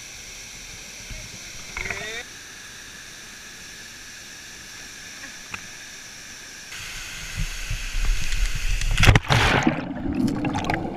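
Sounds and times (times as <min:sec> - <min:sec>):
water splash: 0:08.8 - 0:10.9.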